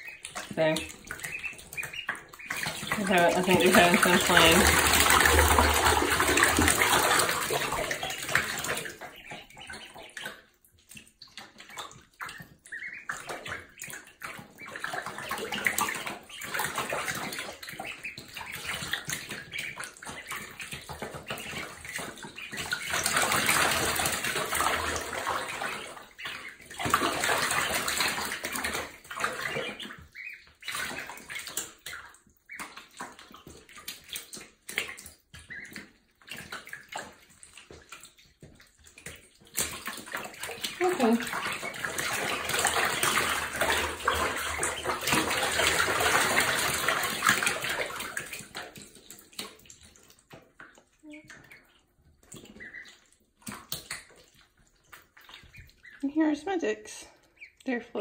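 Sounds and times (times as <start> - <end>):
ducklings splashing in water: 0.0 - 58.0.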